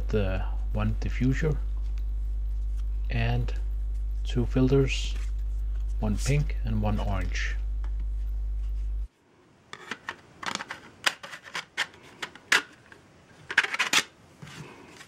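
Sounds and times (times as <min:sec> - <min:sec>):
low steady hum: 0:00.0 - 0:15.0
plastic sheet clicks and rattles: 0:09.8 - 0:14.1.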